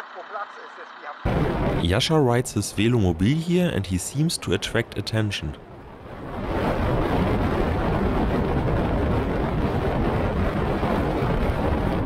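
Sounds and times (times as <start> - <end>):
wind rush: 1.3 - 12.0.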